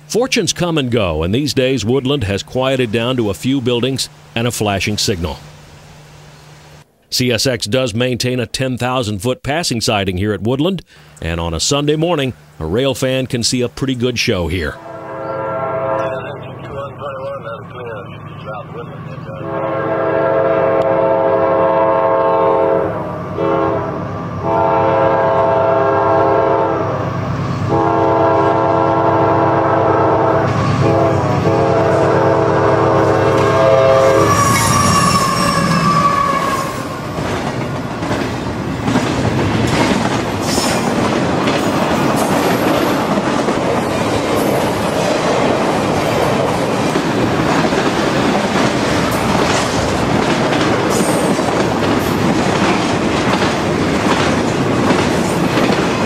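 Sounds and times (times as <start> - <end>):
locomotive horn blasts: 14.8 - 16.8, 19.3 - 27.1, 27.7 - 37.1
train wheels clicking over rail joints: 37.0 - 56.0.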